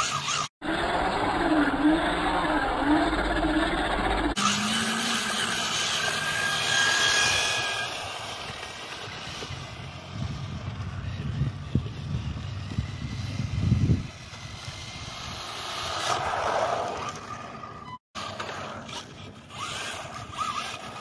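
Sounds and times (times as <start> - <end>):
electric motor whining: 0.0 - 16.1.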